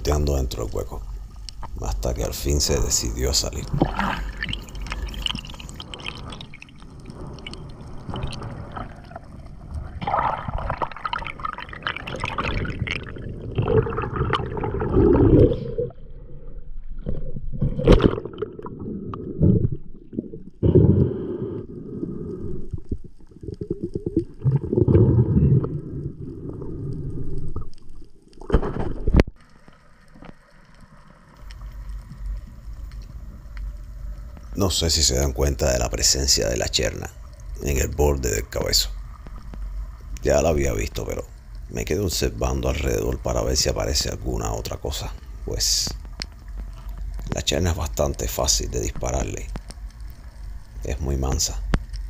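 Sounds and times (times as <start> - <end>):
muffled underwater water noise: 0.0 - 52.0
gurgling bubbles: 0.8 - 29.2.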